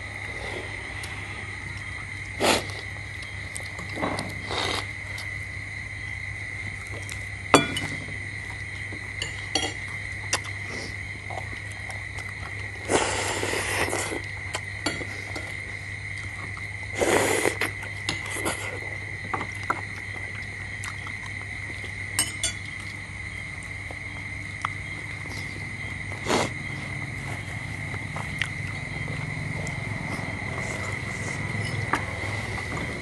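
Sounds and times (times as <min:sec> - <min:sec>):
spoons clinking on dishes: 0:07.5 - 0:08.0, 0:09.2 - 0:09.8, 0:22.2 - 0:22.7
eating noise: 0:10.3 - 0:15.6, 0:24.6 - 0:26.6.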